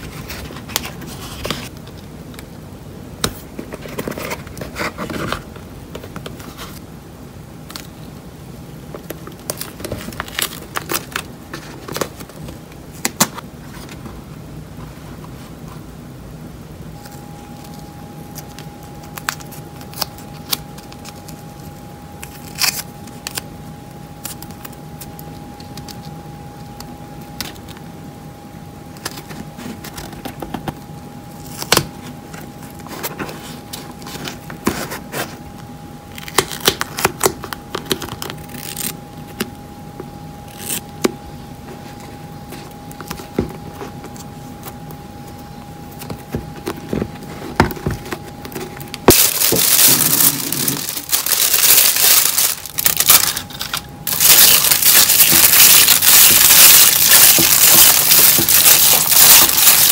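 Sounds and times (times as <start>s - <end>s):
duct tape crinkling: 9.0s - 13.4s, 17.0s - 27.8s, 28.9s - 39.7s, 40.4s - 41.2s, 41.8s - 59.9s.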